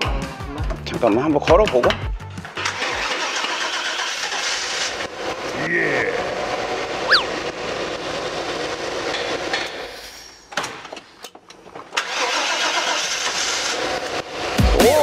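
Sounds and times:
van engine running: 2.1 - 9.6.

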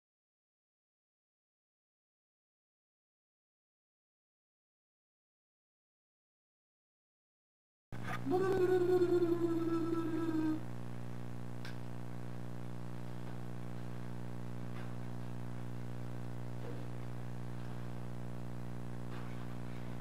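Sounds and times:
low electrical hum: 8.0 - 20.0.

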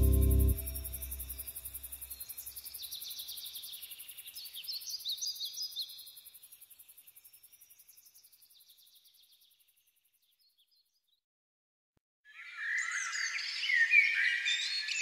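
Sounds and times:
insect buzz: 0.0 - 4.6
small birds chirping: 0.0 - 11.2.

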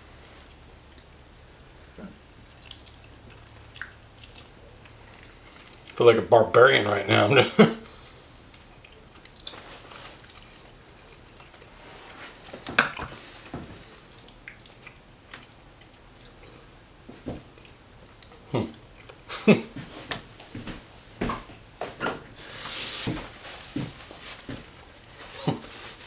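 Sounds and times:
person chewing: 0.3 - 6.0, 8.5 - 11.9, 13.0 - 16.8, 17.5 - 19.3.

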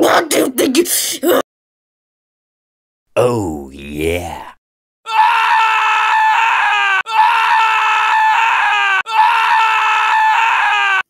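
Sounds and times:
high held scream: 5.1 - 11.0.

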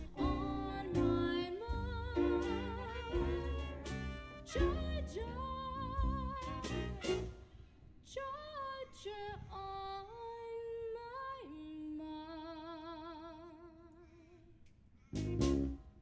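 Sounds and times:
woman singing: 0.0 - 7.3, 8.0 - 14.5
band playing: 0.0 - 7.4.

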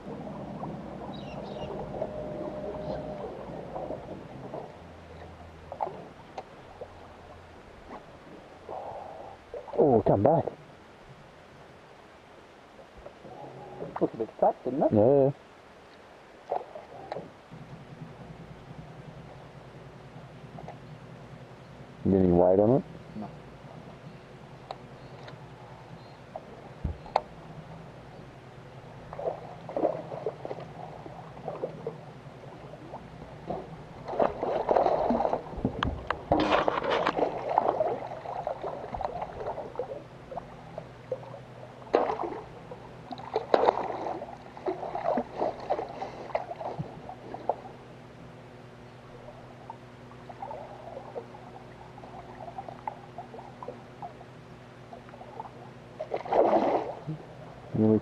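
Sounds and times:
steady low hum: 0.0 - 58.0
fish splashing at the surface: 41.9 - 42.5, 43.1 - 47.6, 55.2 - 57.1.

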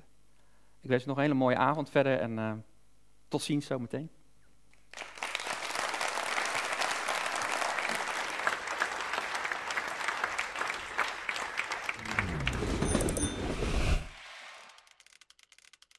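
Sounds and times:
audience applauding: 4.9 - 13.3
low deep swell: 12.0 - 14.6.

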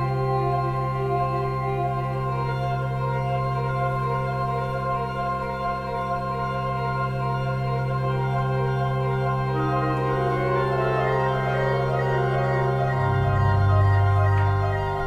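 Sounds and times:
electronic organ chords: 0.0 - 15.0
low organ bass note: 9.3 - 15.0.

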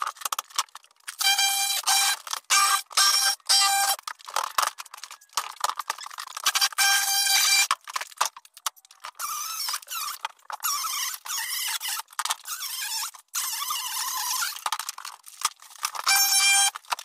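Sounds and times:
wood pieces clattering: 3.7 - 9.3
power saw cutting wood: 16.0 - 16.8.

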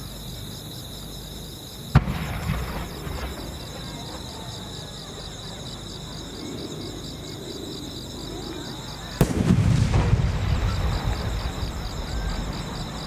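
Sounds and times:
crickets chirping: 0.0 - 13.0
firework boom with rumbling echo: 1.9 - 3.8, 9.2 - 13.0.

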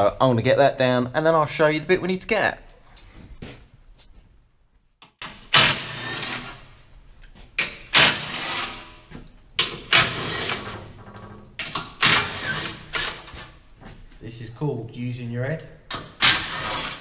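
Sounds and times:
cordless power tool spinning bolts: 5.2 - 6.6, 7.9 - 9.0, 9.6 - 10.8, 11.6 - 13.3, 16.2 - 17.0.

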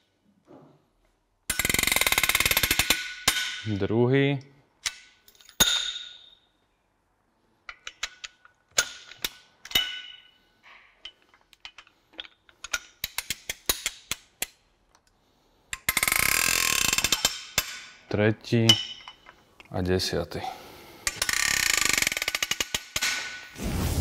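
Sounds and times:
fast ratchet clicks: 21.1 - 22.8.

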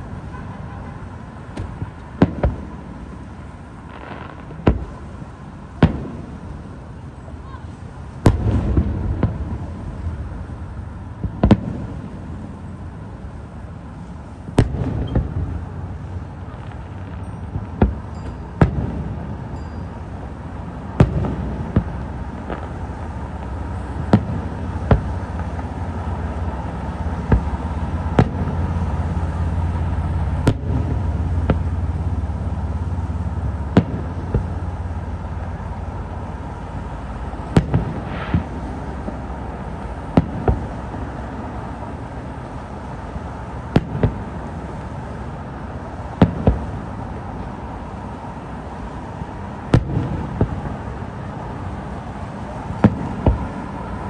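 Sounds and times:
firework bangs: 0.0 - 54.0.

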